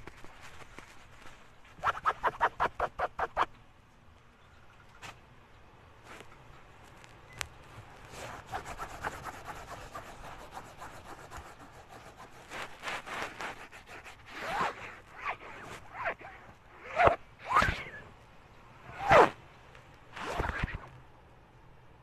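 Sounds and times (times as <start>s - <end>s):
scratchy rubbing on microphone: 0.0s - 3.5s, 8.0s - 18.0s, 18.9s - 19.4s, 20.1s - 20.9s
short pitch-sliding sounds: 14.3s - 18.1s.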